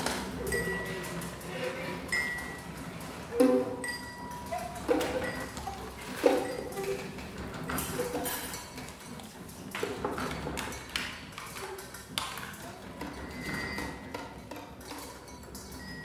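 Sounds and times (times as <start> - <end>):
drinking glasses pinging: 3.3 - 5.6.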